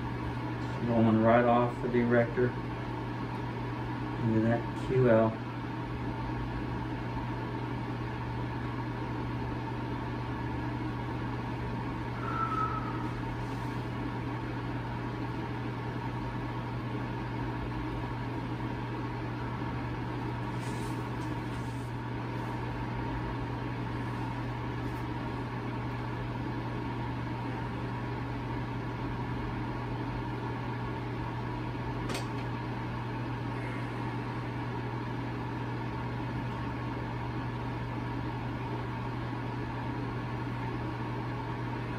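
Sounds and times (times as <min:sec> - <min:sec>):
low machine hum: 0:00.0 - 0:41.9
faint whine: 0:11.4 - 0:15.4
short high chirp: 0:12.2 - 0:13.2.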